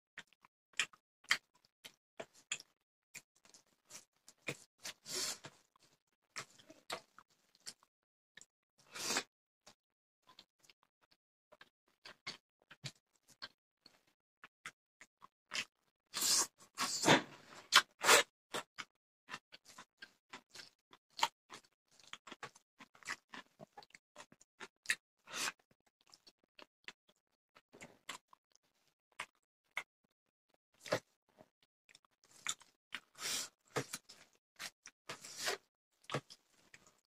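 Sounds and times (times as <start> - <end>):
chewing and lip smacking: 0.2 - 5.0, 10.2 - 15.9, 18.5 - 27.2, 27.8 - 29.9, 30.7 - 37.0.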